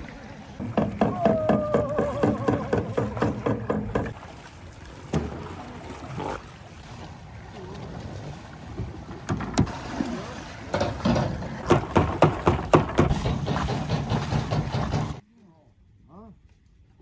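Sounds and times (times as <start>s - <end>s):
water washing against boat: 0.0s - 15.2s
boat knocks: 0.6s - 4.3s, 5.0s - 5.6s, 8.6s - 9.8s, 10.7s - 15.2s.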